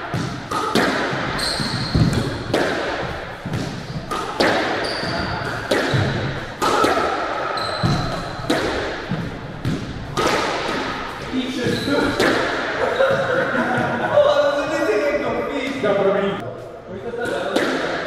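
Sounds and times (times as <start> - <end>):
squash ball hitting rackets and walls: 0.0 - 14.1, 17.0 - 18.0
shoes squeaking on court floor: 0.6 - 6.4, 7.4 - 8.5, 11.0 - 13.4.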